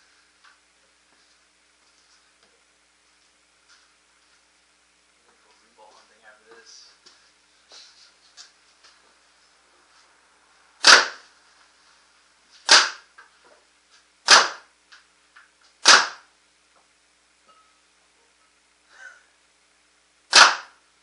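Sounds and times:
paintball marker shots: 10.8s - 11.2s, 12.6s - 13.1s, 14.2s - 14.7s, 15.8s - 16.3s, 20.3s - 20.8s.

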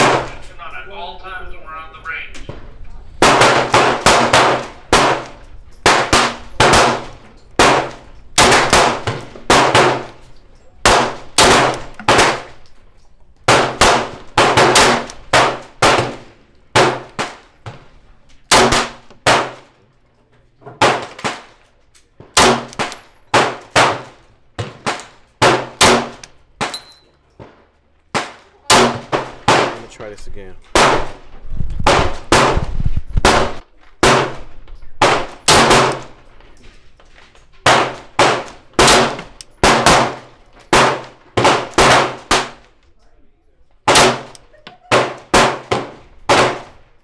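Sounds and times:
gunshots with echo: 0.0s - 0.4s, 3.2s - 10.1s, 10.8s - 12.6s, 13.5s - 17.4s, 28.1s - 30.0s.

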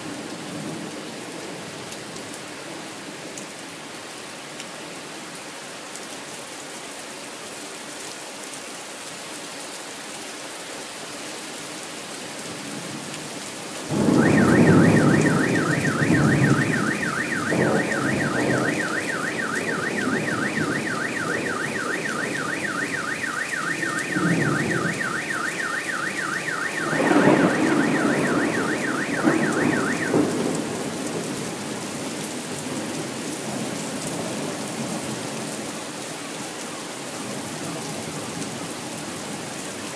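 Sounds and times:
steady rain: 0.0s - 39.9s
car alarm warbling: 13.9s - 30.7s
thunder rumbling: 13.9s - 31.8s.

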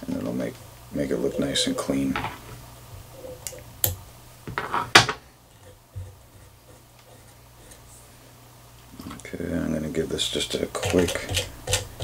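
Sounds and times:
tools clicking and tapping: 3.4s - 4.6s, 10.8s - 12.0s.

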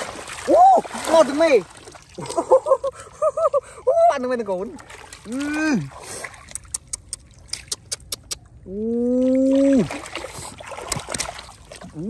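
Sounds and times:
fish slapping and splashing: 0.0s - 2.5s, 4.7s - 8.3s, 9.2s - 12.0s
person calling out oooh: 0.5s - 0.9s, 5.2s - 5.9s, 8.6s - 10.0s.

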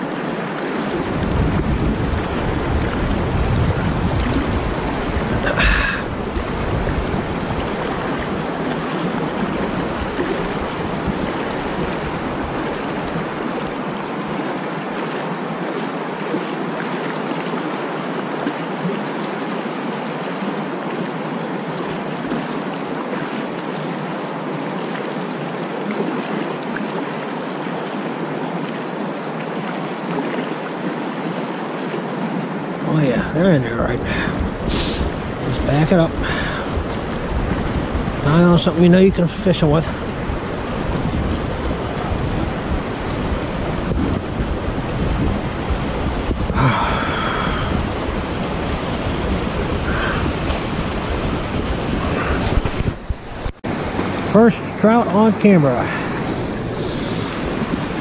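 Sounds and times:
stream water rushing: 0.0s - 58.0s
wind rumble on microphone: 0.8s - 14.6s, 33.1s - 54.8s, 55.8s - 58.0s.

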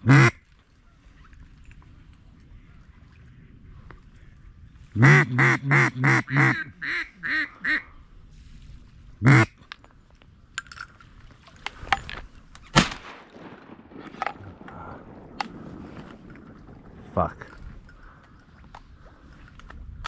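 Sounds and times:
duck call quacks: 0.0s - 0.4s, 5.0s - 7.9s, 9.2s - 9.6s
clicks and rustling: 9.6s - 16.8s.

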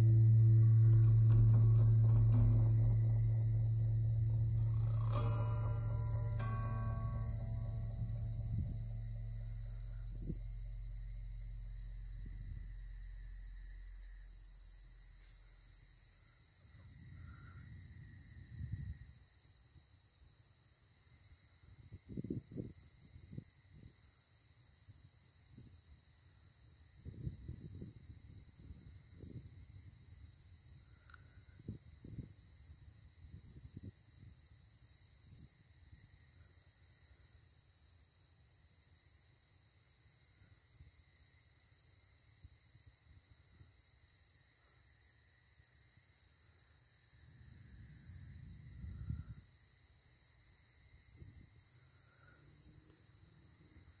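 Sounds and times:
low rumbles on microphone: 0.0s - 16.2s
night insects trilling: 0.0s - 54.0s.

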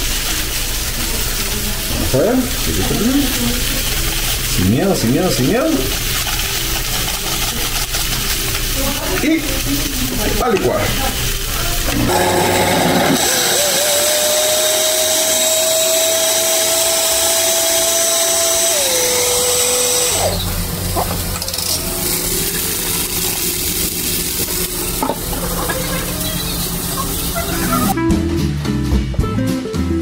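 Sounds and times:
blender motor whine: 11.8s - 20.7s.

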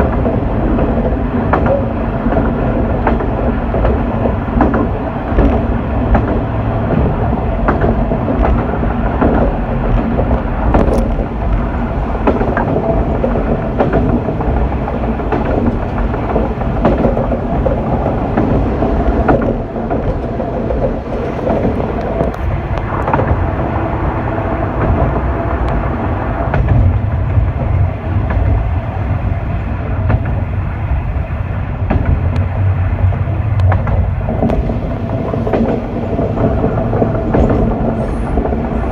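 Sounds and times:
clicks from rails: 0.0s - 23.5s, 33.6s - 38.9s
diesel railcar engine: 0.0s - 38.9s
wheel and rail noise: 0.0s - 38.9s.

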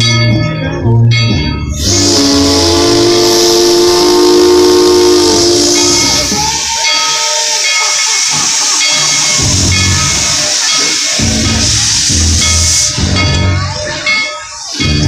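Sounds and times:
steam locomotive whistle: 1.8s - 13.3s
steam hissing: 1.8s - 15.0s.

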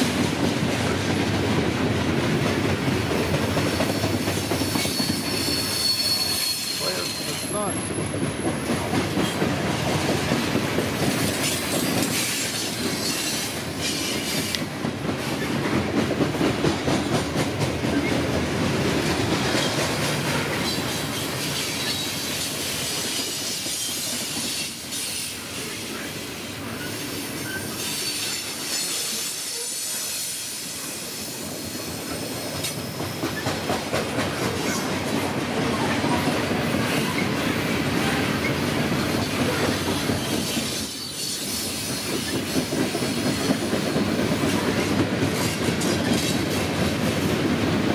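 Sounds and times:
train wheels rumbling on rails: 0.0s - 47.9s
high wheel squeal: 3.8s - 8.2s, 26.7s - 31.3s, 39.0s - 43.3s
wheels clacking over rail joints: 31.9s - 47.9s.

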